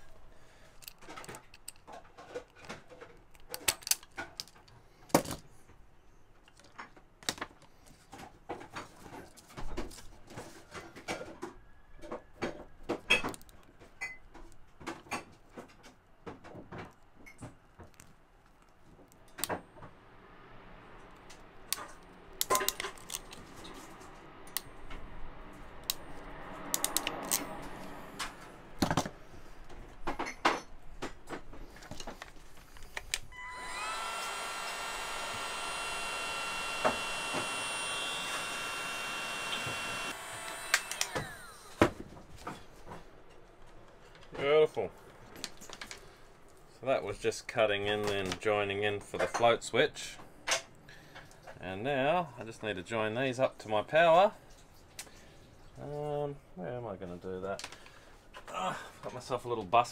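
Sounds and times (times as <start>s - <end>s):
hand tools clicking and clacking: 26.7s - 27.5s.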